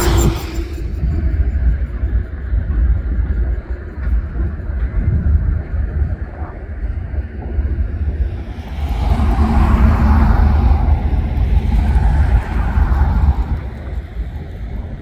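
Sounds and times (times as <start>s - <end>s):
diesel locomotives rumbling past: 0.0s - 3.4s, 6.6s - 15.0s.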